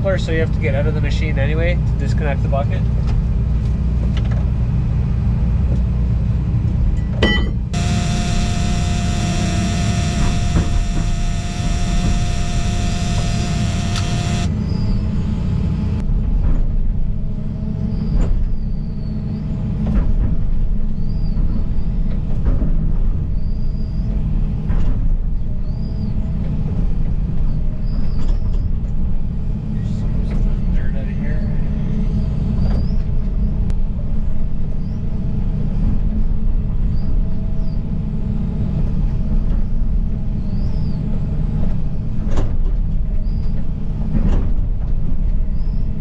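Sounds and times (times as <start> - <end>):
bright steady hum: 7.8 - 16.0.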